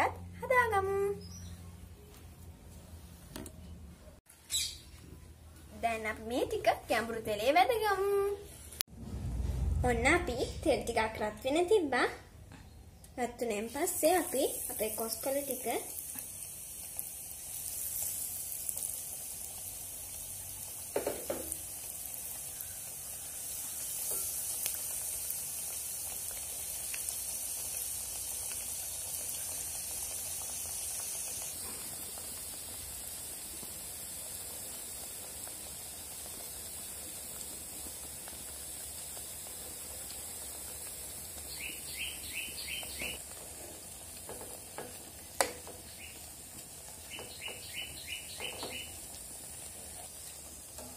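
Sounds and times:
hot oil sizzling: 5.7s - 50.9s.

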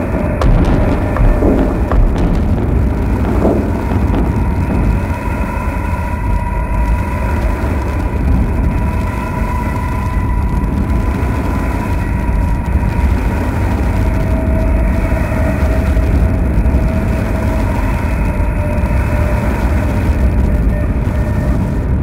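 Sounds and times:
synthesizer noise drone: 0.0s - 10.0s.

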